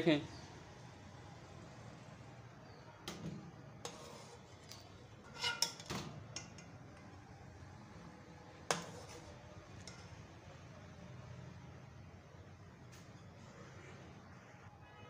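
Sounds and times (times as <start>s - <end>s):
metal spoon clinking on pots: 3.9s - 7.1s, 8.7s - 10.3s.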